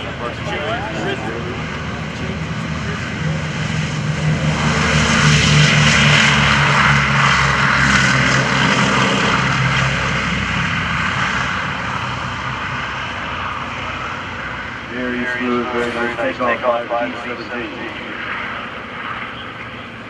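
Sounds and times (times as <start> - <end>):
propeller aircraft engines droning: 0.0 - 20.0.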